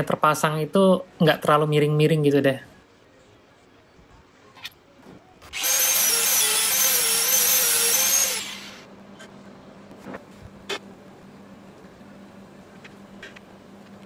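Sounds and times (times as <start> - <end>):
power drill motor whine: 5.5 - 8.9.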